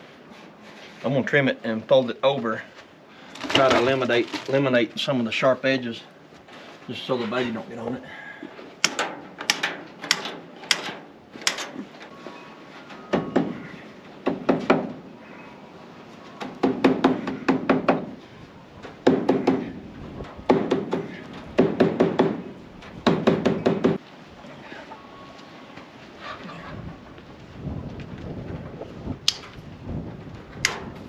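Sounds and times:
wire cutters snipping: 0:08.8 - 0:11.8
hammer strikes on wood: 0:13.1 - 0:13.6, 0:14.2 - 0:15.0, 0:16.4 - 0:18.1, 0:19.0 - 0:19.7, 0:20.5 - 0:22.4, 0:23.0 - 0:24.0.

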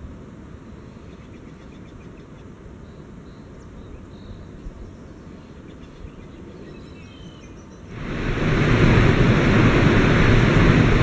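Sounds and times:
faint bird chirps: 0:00.8 - 0:07.9
wind buffeting microphone: 0:07.9 - 0:11.0.

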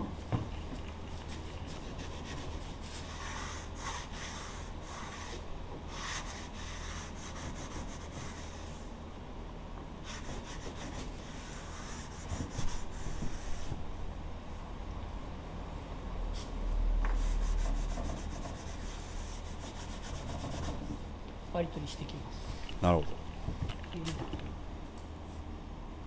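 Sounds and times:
sandpaper rubbing: 0:17.3 - 0:20.9.

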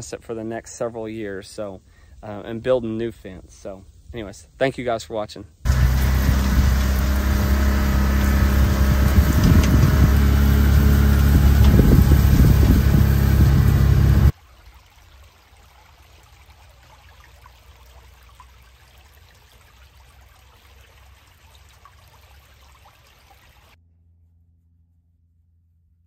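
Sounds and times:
loud rumbling noise: 0:05.7 - 0:14.3
creek trickling over rocks: 0:05.7 - 0:23.8.

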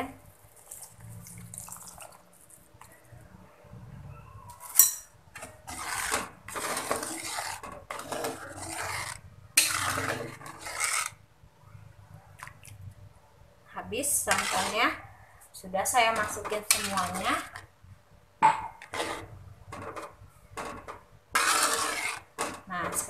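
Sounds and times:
spoon scraping and sloshing broth: 0:00.4 - 0:03.0, 0:04.6 - 0:11.2, 0:14.0 - 0:15.0, 0:15.9 - 0:17.7, 0:18.6 - 0:23.0.

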